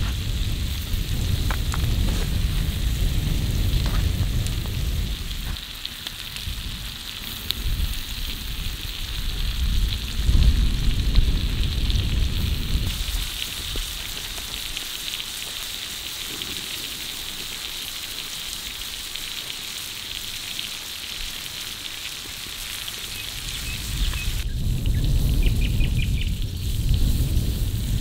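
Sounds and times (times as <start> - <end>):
low rumble: 0.0 - 5.6, 6.4 - 14.4
steak sizzling on a griddle: 0.0 - 28.0.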